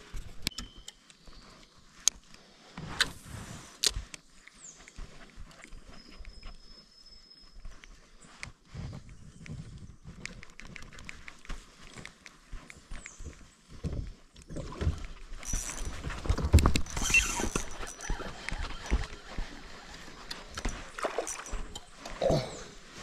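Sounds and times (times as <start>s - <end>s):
fishing reel clicking: 16.6s - 21.8s.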